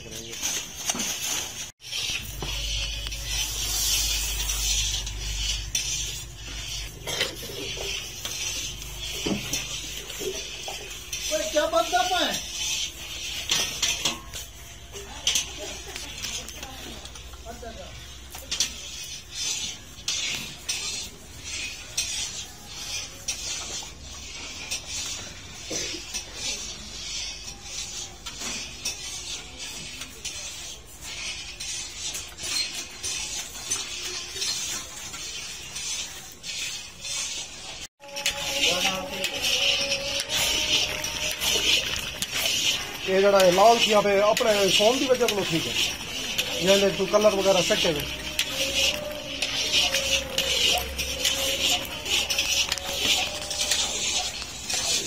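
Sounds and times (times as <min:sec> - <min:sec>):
metal rod scraping a pot: 0:00.0 - 0:55.0
milk boiling and bubbling: 0:00.0 - 0:55.0.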